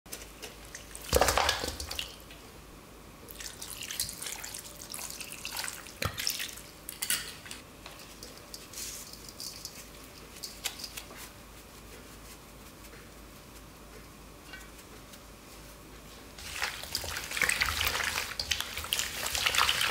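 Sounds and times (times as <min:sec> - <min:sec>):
liquid pouring and splashing: 0:03.3 - 0:06.7, 0:16.4 - 0:19.9
salt sprinkling: 0:07.9 - 0:13.7.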